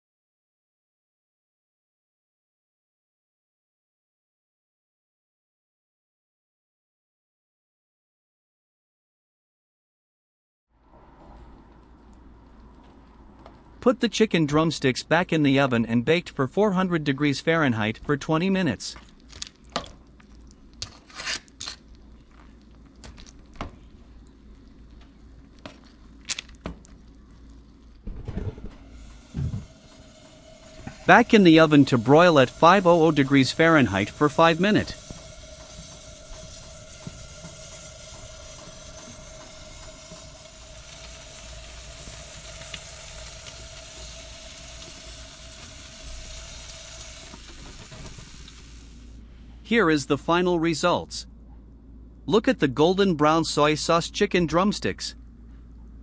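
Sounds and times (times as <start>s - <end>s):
low steady hum: 11.0s - 56.0s
aluminium foil crinkling: 19.0s - 28.0s
chicken sizzling: 21.5s - 28.1s, 28.9s - 49.2s.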